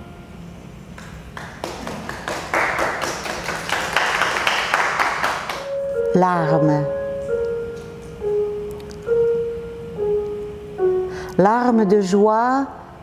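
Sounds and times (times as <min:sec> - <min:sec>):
audience applauding: 0:01.0 - 0:05.7.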